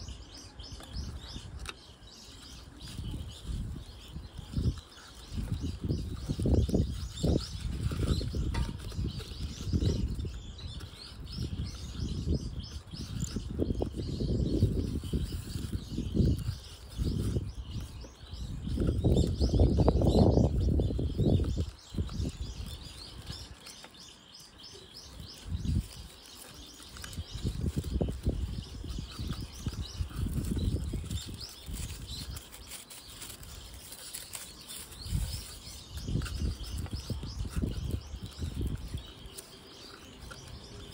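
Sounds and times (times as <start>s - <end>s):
faint birds chirping: 0.0s - 40.9s
hands rustling and rubbing: 24.9s - 40.9s.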